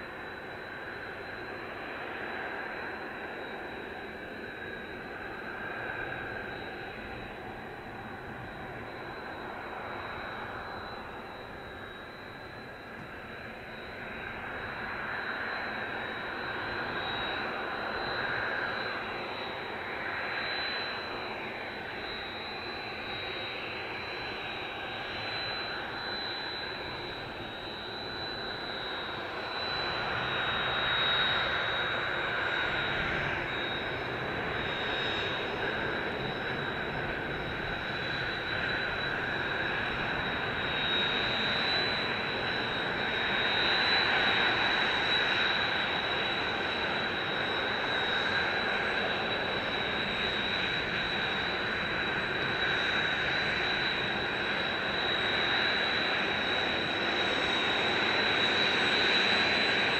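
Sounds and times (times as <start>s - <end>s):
jet engines whining: 0.0s - 59.9s.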